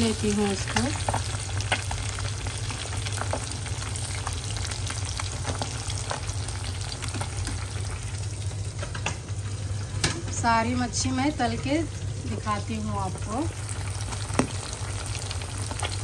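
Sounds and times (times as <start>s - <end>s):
fish frying in hot oil: 0.0s - 16.0s
low steady hum: 0.0s - 16.0s
oil crackling pops: 13.9s - 16.0s.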